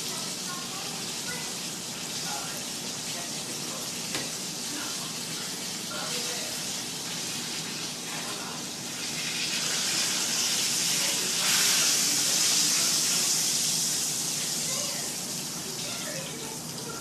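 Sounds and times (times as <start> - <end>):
tap running into steel sink: 4.1 - 4.3.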